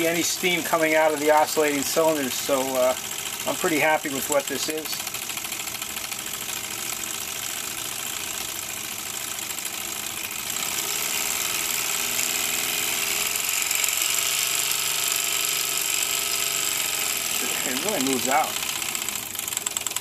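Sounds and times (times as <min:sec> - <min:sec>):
steam engine chugging: 0:00.0 - 0:11.9, 0:16.6 - 0:20.0.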